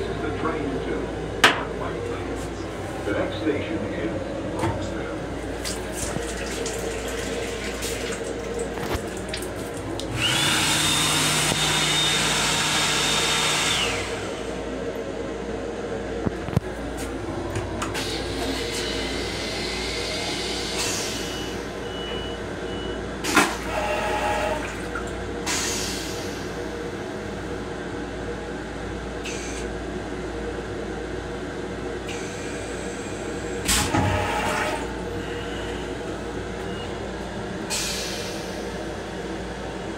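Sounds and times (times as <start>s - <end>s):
railcar running rumble: 0.0s - 10.4s, 13.7s - 39.9s
hand dryer whining: 5.6s - 14.6s.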